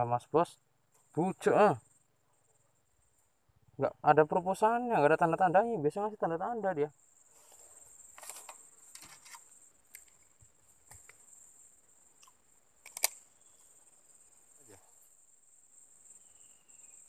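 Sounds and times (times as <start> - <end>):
insect chirring: 0.0 - 17.0
handling clicks and rustles: 8.0 - 11.4.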